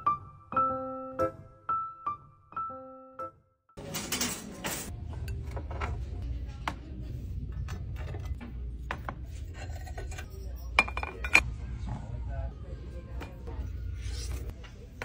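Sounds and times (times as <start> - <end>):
ceramic mugs clinking: 8.2 - 11.5.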